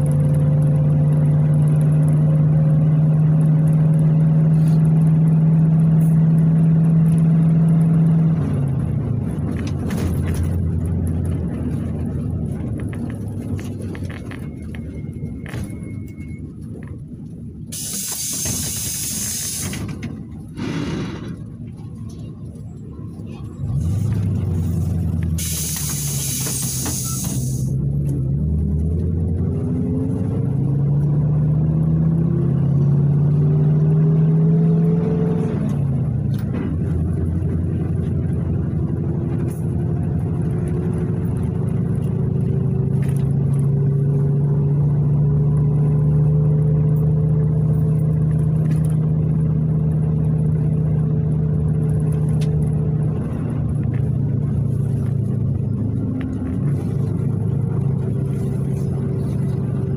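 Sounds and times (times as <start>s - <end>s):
bus engine from inside cabin: 0.0s - 59.9s.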